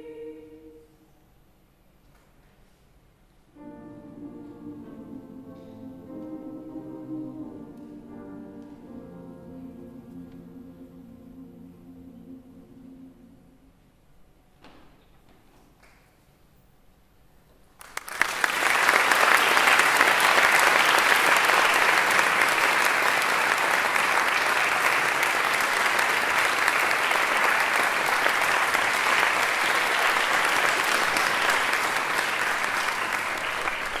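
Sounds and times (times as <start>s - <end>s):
audience applauding: 17.8s - 34.0s.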